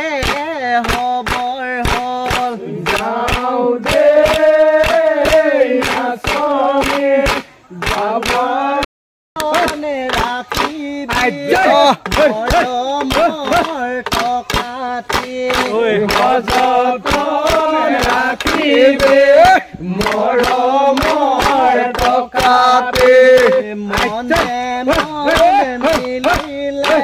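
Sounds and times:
group of voices singing: 0:00.0 - 0:27.0
sharp rhythmic beats: 0:00.0 - 0:27.0.

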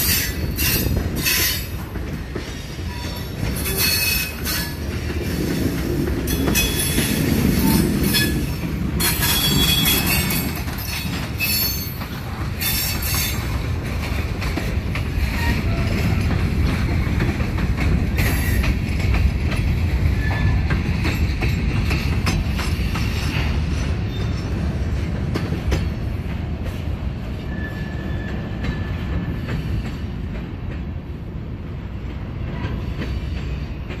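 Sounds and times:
wheels clacking over rail joints: 0:00.0 - 0:26.8
freight train rumbling past: 0:00.0 - 0:34.0
wheel squeals: 0:09.0 - 0:13.4, 0:27.5 - 0:29.0.

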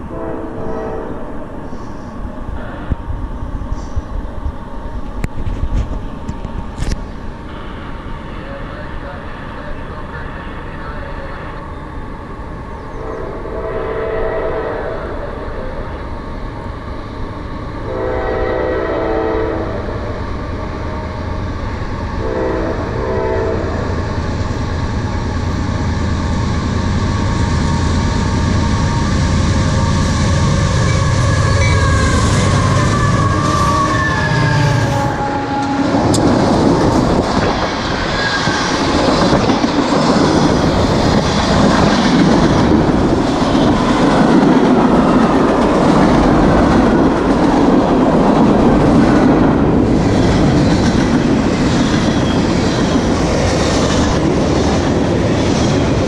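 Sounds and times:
train horn blasts: 0:00.0 - 0:01.4, 0:13.0 - 0:15.2, 0:17.9 - 0:19.9, 0:22.2 - 0:23.8, 0:30.8 - 0:36.2
locomotive engines rumbling: 0:00.0 - 0:56.0
train wheels clattering on rails: 0:35.5 - 0:56.0.

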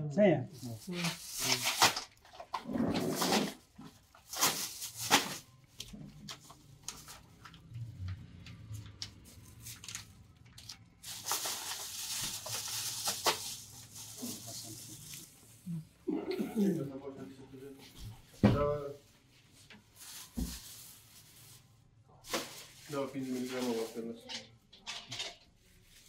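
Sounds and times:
packaging rustling: 0:00.6 - 0:15.5, 0:19.9 - 0:24.2.

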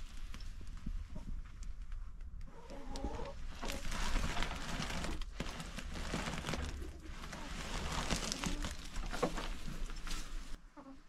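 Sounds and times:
plastic sack rustling and crinkling: 0:03.0 - 0:10.6.

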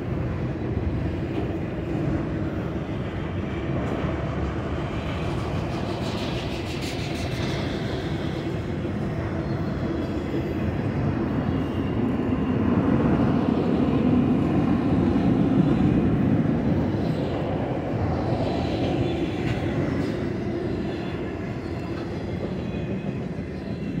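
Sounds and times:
freight train wheels rumbling: 0:00.0 - 0:24.0.

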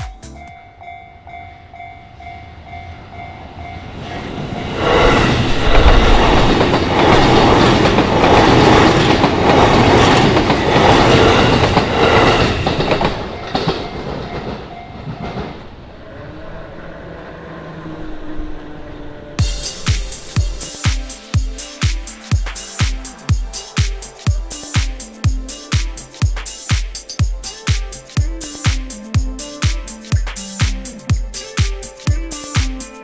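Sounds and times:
level crossing bell ringing: 0:00.0 - 0:03.9
train wheels clattering over rails: 0:04.6 - 0:15.6.

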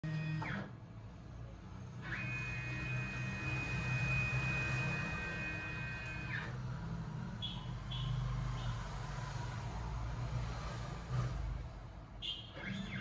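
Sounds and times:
stepper motors whining: 0:01.9 - 0:06.6.

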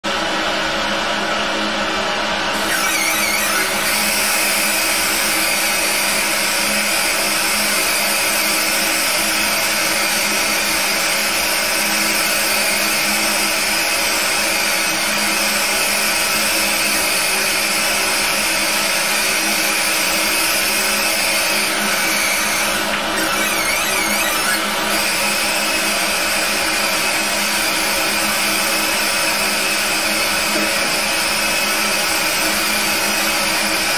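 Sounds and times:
laser engraver buzzing hiss: 0:02.6 - 0:06.8, 0:20.0 - 0:26.6.

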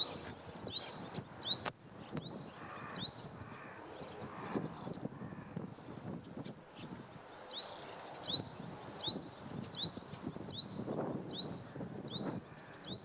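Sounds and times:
bird singing whistled song: 0:00.0 - 0:03.2, 0:07.2 - 0:13.0.

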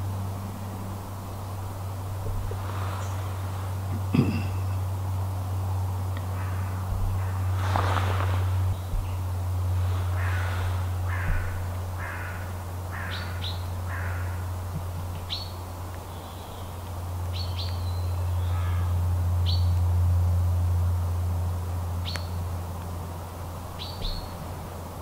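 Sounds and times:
low hum: 0:00.0 - 0:25.0
harsh crow-like calls: 0:06.2 - 0:08.4, 0:09.9 - 0:15.5, 0:18.4 - 0:19.0.

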